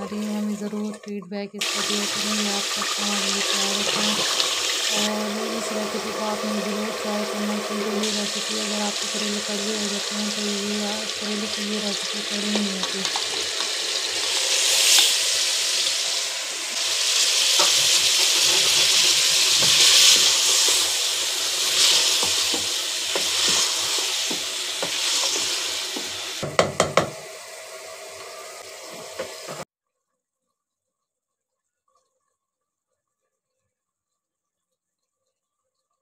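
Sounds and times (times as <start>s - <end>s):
onions sizzling in a pot: 1.6s - 29.7s.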